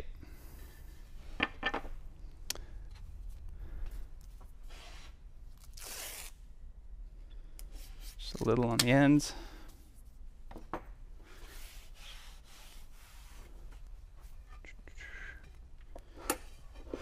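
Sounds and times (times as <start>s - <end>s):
tape ripping off roll: 5.6s - 6.4s.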